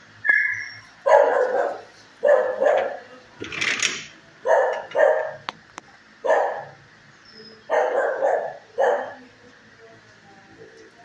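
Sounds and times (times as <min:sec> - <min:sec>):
dog barking: 0:01.0 - 0:03.0, 0:04.4 - 0:05.4, 0:06.2 - 0:06.8, 0:07.7 - 0:09.2.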